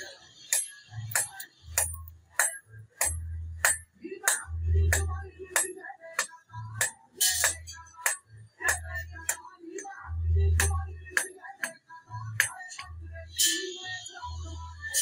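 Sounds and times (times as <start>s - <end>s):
hammer striking iron on anvil: 0.5s - 9.4s, 10.6s - 11.8s, 12.4s - 13.6s.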